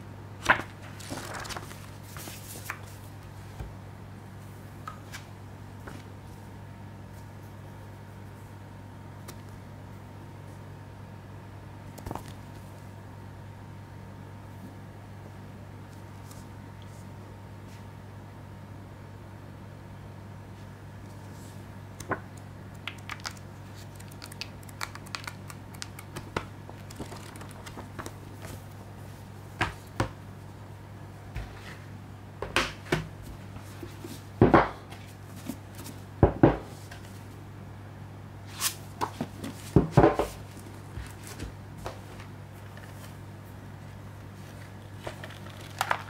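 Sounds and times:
steady low hum: 0.0 - 46.0
cardboard and paper rustling: 0.4 - 3.1, 23.0 - 28.8, 38.6 - 43.2, 44.4 - 46.0.

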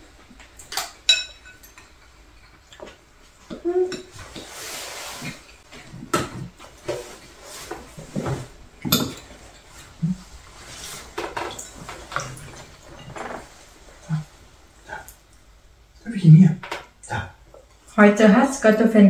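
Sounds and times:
utensils clinking on bowls: 0.6 - 2.9, 8.8 - 9.8.

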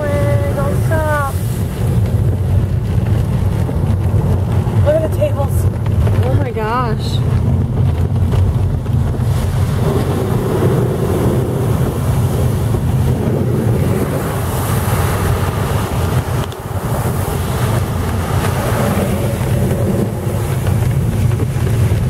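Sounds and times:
tyres hissing on wet road: 0.0 - 3.6, 9.2 - 21.1
engine and tyre rumble: 0.0 - 22.0.

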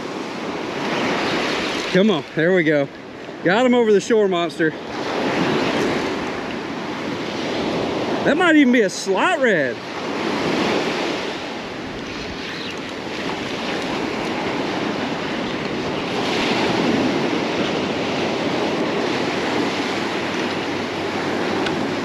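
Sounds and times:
surf breaking on beach: 0.0 - 22.0
wind buffeting microphone: 4.6 - 8.6, 9.2 - 22.0.

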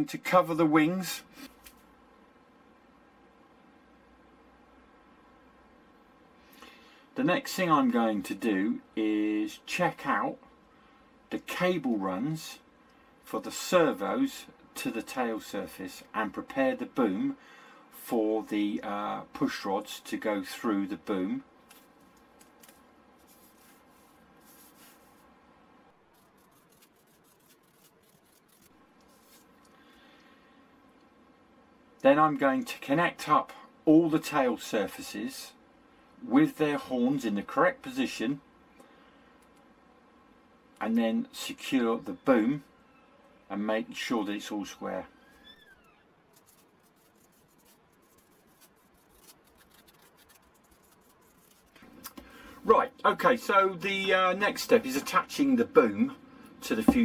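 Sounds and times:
pen scratching on paper: 46.4 - 51.7.

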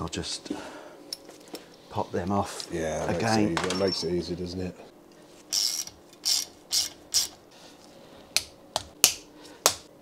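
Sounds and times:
hand ratchet clicking: 5.5 - 7.4.

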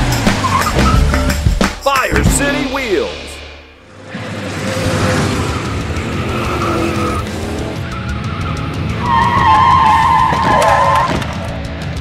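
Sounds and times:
van engine running hard: 0.0 - 1.6
background music: 0.0 - 12.0
tyres screeching: 4.5 - 11.6.

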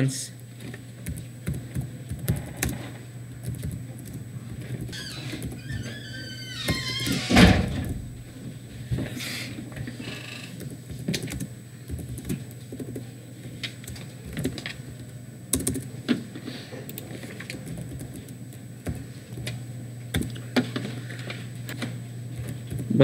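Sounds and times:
steady low hum: 0.0 - 23.0
typing on computer keyboard: 3.4 - 5.6, 10.6 - 13.0, 13.8 - 14.8, 15.5 - 15.9, 16.9 - 18.4.

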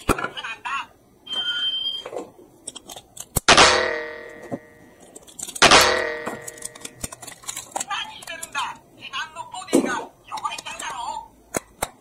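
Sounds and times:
ringing metallic clangs: 3.6 - 4.9, 5.6 - 6.9.

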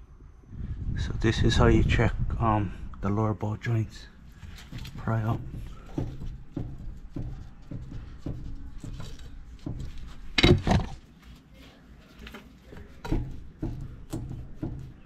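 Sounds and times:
pry bar knocking on wheel: 4.4 - 11.0, 13.0 - 15.0.

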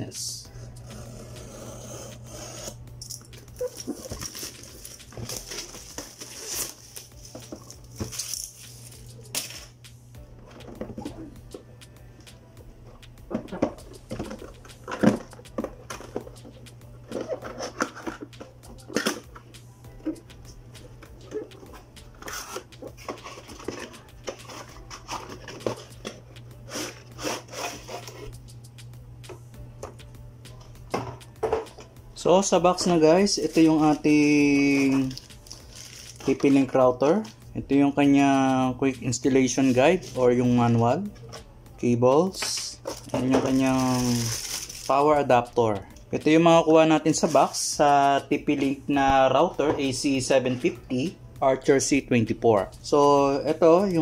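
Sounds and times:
steady low hum: 0.0 - 36.4
plastic shrink wrap crinkling: 3.6 - 9.3, 34.7 - 36.4, 42.8 - 45.1.

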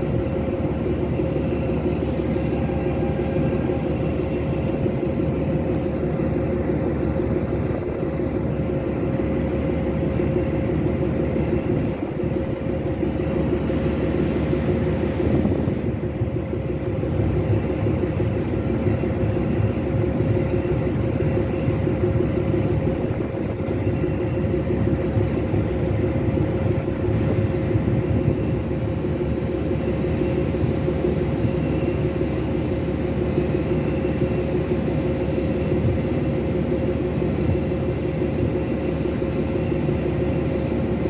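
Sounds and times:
constant hum: 0.0 - 41.0
ship engine rumbling: 0.0 - 41.0.

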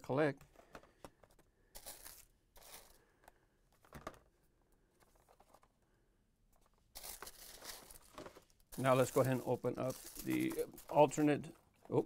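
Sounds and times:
plastic blister packs crinkling: 6.9 - 12.0.

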